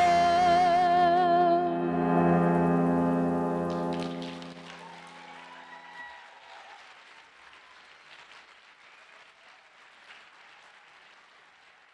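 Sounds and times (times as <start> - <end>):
piano chord: 0.0 - 5.6
audience applauding: 2.6 - 11.9.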